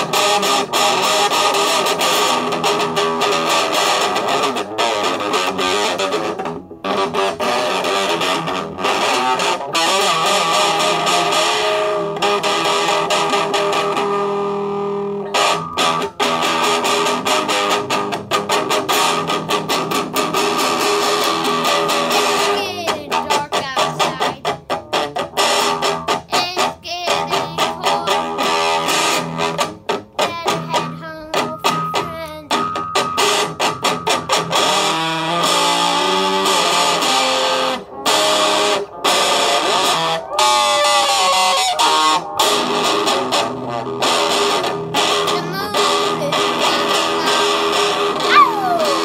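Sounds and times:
electric guitar fast picked riff: 0:00.0 - 0:49.0.

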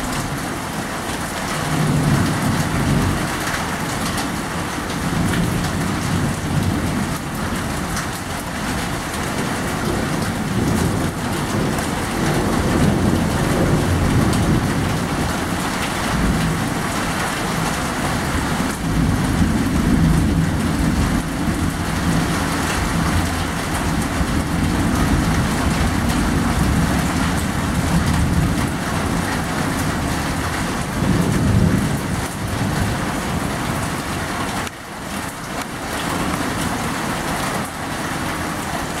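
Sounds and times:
heavy rain pouring: 0:00.0 - 0:39.0
thunder rumbling: 0:04.1 - 0:34.7.

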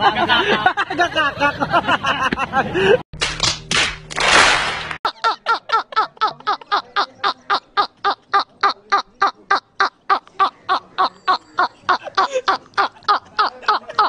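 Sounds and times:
man laughing hard: 0:05.1 - 0:14.0.

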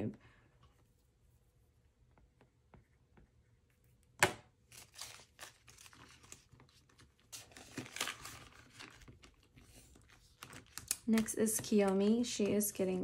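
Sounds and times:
plastic and paper crinkling: 0:04.7 - 0:13.0.

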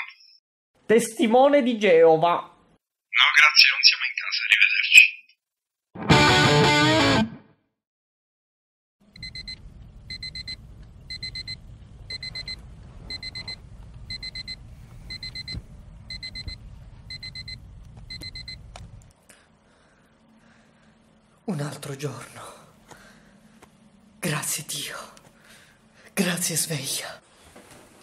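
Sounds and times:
alarm clock beeping: 0:09.2 - 0:18.6.

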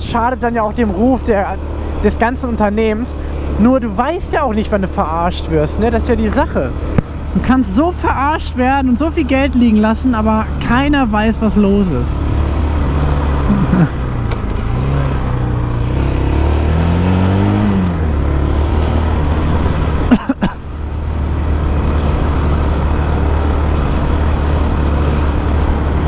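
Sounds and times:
quad engine revving: 0:10.1 - 0:26.0.

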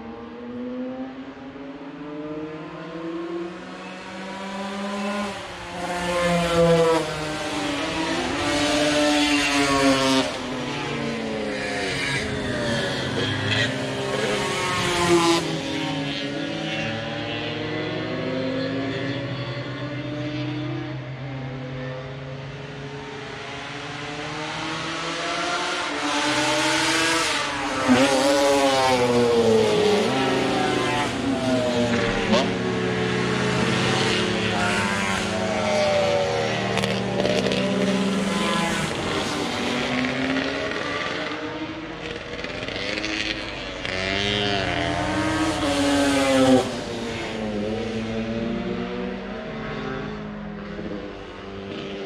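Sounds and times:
racing motorcycles passing: 0:00.0 - 0:52.0.

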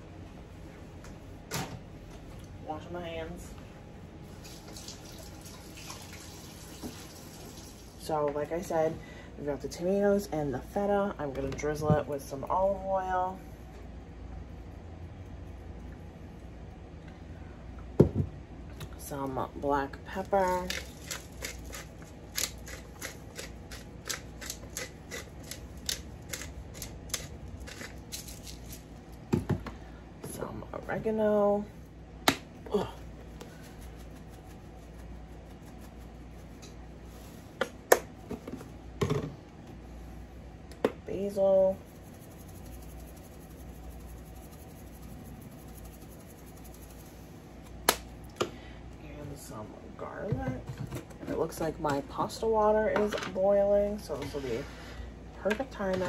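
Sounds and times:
steady low hum: 0:00.0 - 0:06.6, 0:07.2 - 0:56.0
pepper grinder clicking: 0:20.7 - 0:28.3.

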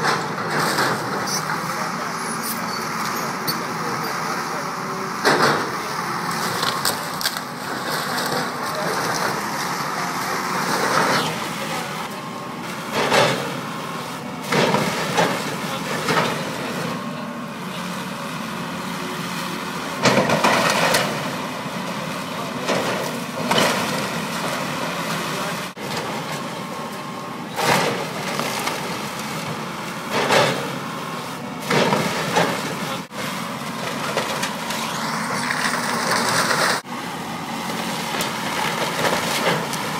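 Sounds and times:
excavator running: 0:00.0 - 0:39.9
splintering timber cracks and crashes: 0:06.4 - 0:09.4, 0:27.6 - 0:29.3, 0:33.8 - 0:36.9, 0:38.1 - 0:39.9.

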